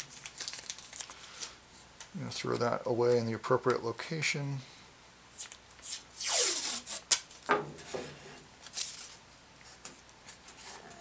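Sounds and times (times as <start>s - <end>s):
tape rubbed onto wood: 5.4s - 7.2s
tape being torn: 5.4s - 7.5s.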